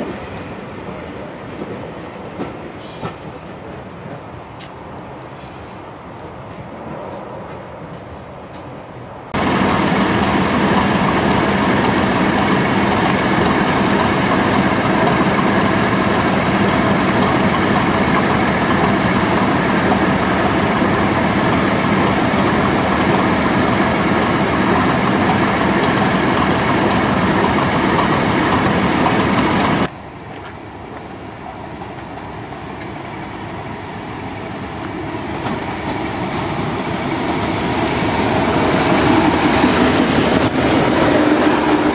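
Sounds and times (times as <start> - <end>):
locomotive approaching: 0.0 - 41.9
diesel locomotive engine running: 9.4 - 30.0, 30.6 - 41.9.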